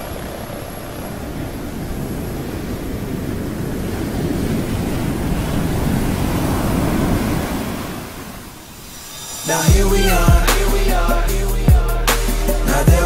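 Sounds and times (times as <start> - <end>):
low rushing noise: 4.6 - 13.0
music: 9.0 - 13.0.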